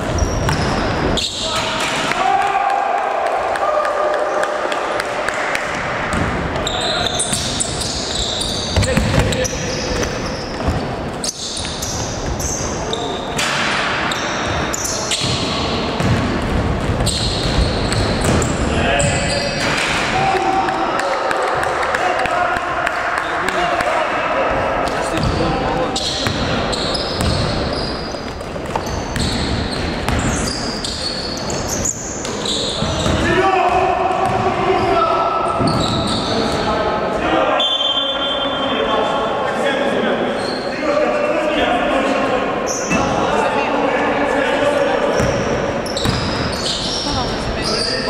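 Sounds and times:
basketball bouncing on court: 0.0s - 1.1s, 5.7s - 7.6s, 8.5s - 12.6s, 14.2s - 19.2s, 25.0s - 30.6s, 32.8s - 34.9s, 45.2s - 47.4s
sneakers squeaking on wooden floor: 0.0s - 1.6s, 6.1s - 19.6s, 25.0s - 36.7s, 40.3s - 40.8s, 45.1s - 48.0s
players' voices: 0.0s - 48.0s.

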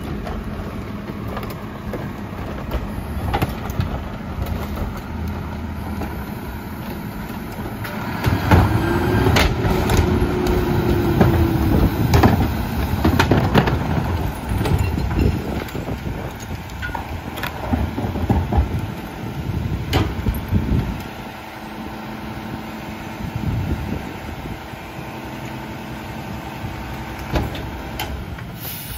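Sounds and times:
garbage truck engine idling: 0.0s - 28.9s
carts banging against hopper: 7.4s - 21.0s.

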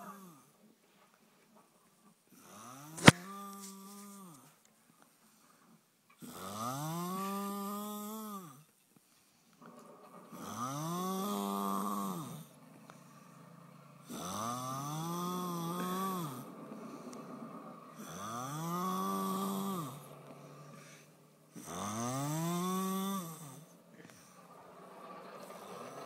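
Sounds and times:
quiet breathing: 0.0s - 26.0s
loud snoring: 2.4s - 4.4s, 6.2s - 8.7s, 9.8s - 26.0s.

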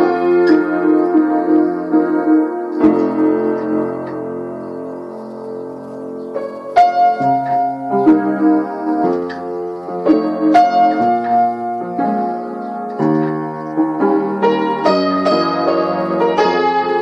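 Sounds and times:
slow piano melody: 0.0s - 17.0s.

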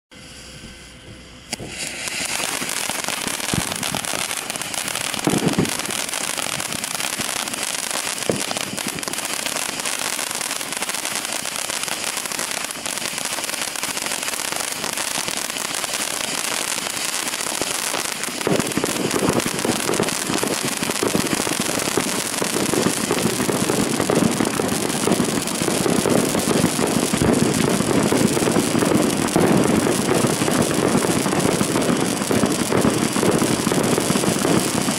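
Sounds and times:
firework fountain hissing and crackling: 0.2s - 34.9s
sharp pops: 1.5s - 4.5s.

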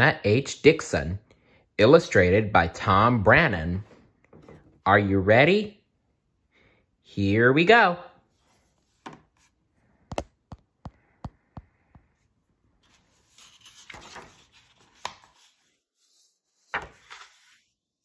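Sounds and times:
book pages turning: 8.3s - 10.7s, 12.1s - 17.8s
page slapping: 13.3s - 15.5s, 16.7s - 17.5s.

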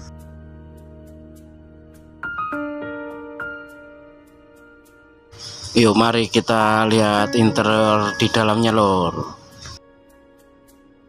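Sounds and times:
soft sustained backing: 4.3s - 11.0s
struck notes melody: 5.8s - 9.6s.

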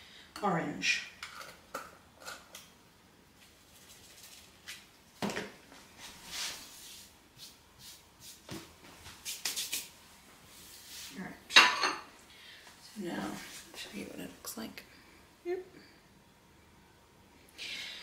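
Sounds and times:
dishes clattering: 11.5s - 12.1s.

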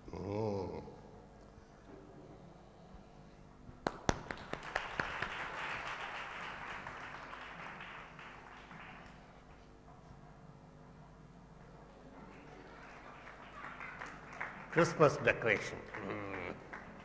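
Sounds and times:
audience clapping: 3.8s - 9.6s, 12.2s - 17.0s.

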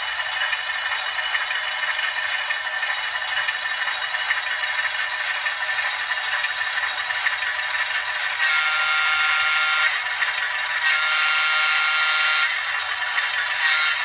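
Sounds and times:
small speaker diesel engine sound: 0.0s - 14.0s
model train horn: 8.3s - 10.1s, 10.7s - 12.8s, 13.4s - 14.0s.

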